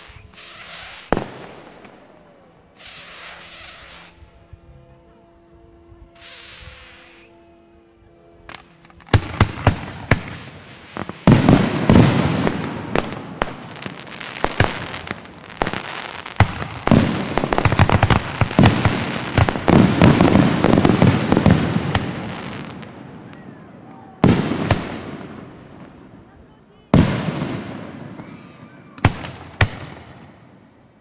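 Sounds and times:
fireworks bursting with sharp bangs: 0.0 - 4.3, 8.5 - 31.0.

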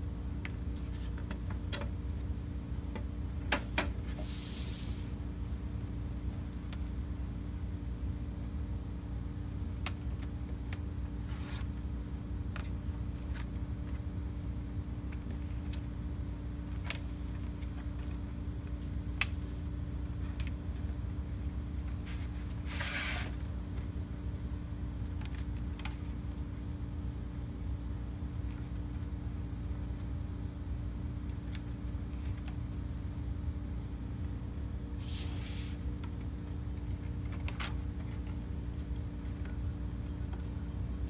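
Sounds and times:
low background hum: 0.0 - 41.0
board scraping: 22.6 - 23.3.

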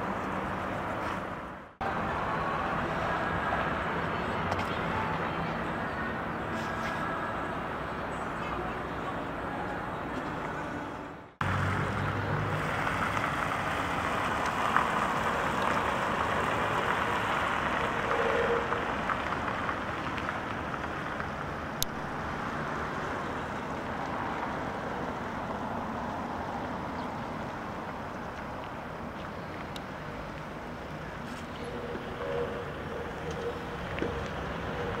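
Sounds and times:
outdoor background hiss and rumble: 0.0 - 35.0.

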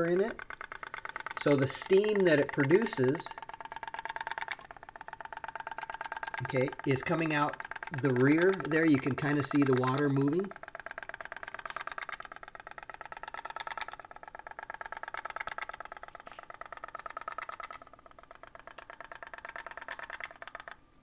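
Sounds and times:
toy steam boat popping rapidly: 0.0 - 20.8.

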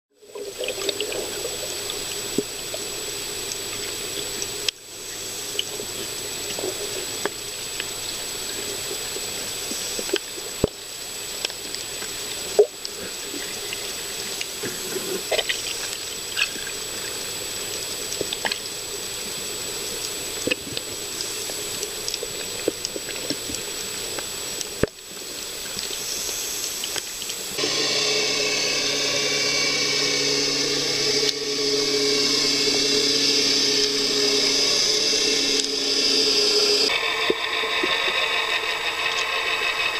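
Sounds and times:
underwater watery hiss: 0.6 - 27.6
sharp clicks and crackles: 17.7 - 18.7, 20.0 - 27.5
steady whir with tones: 27.6 - 39.9.

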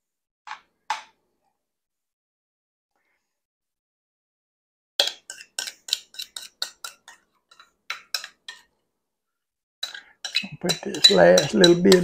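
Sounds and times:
spoon scraping a mixing bowl: 5.0 - 8.7, 9.8 - 12.0.

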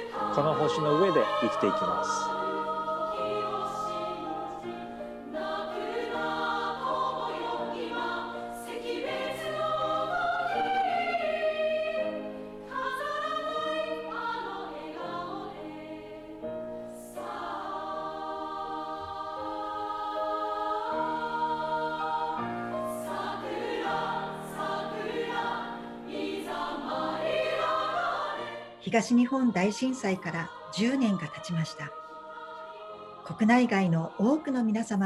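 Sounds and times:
choir singing slow chords: 0.0 - 35.0.

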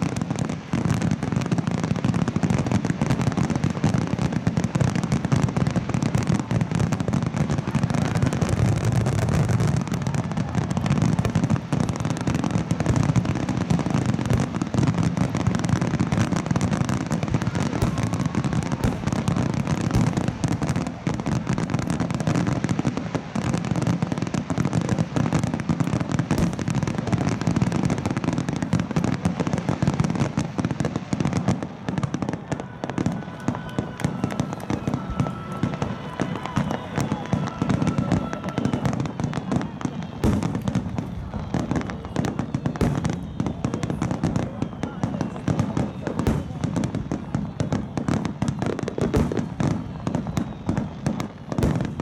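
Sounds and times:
fireworks booming: 0.0 - 52.0
fireworks crackle: 0.0 - 52.0.

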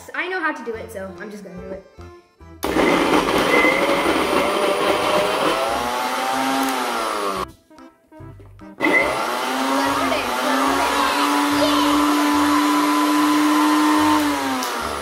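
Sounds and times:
blender motor running: 2.6 - 7.4, 8.8 - 15.0.

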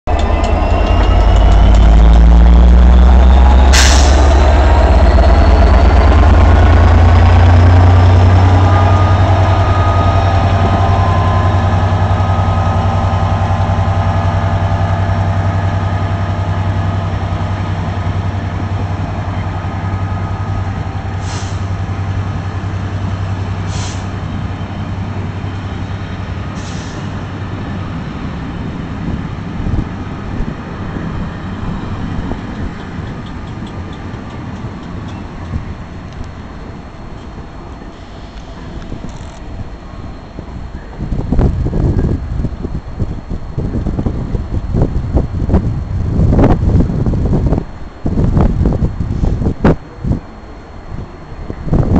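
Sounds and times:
diesel locomotive engine: 0.0 - 51.9
short high hisses: 3.7 - 4.4, 21.2 - 21.8.

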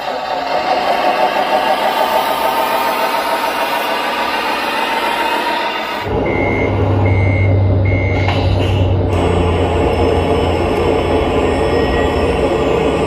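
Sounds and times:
simulated diesel engine: 0.0 - 13.0
reversing beeper: 5.8 - 13.0.

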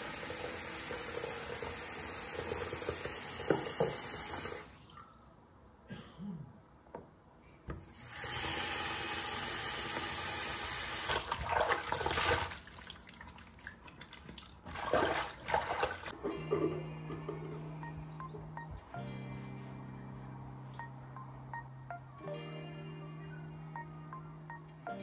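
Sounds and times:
tap running into a basin: 0.0 - 5.0
music track: 16.1 - 25.0.

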